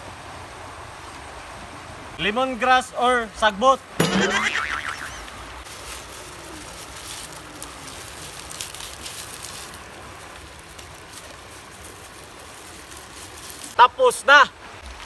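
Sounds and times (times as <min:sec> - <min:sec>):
rustling and crinkling of stalks: 0:04.8 - 0:15.0.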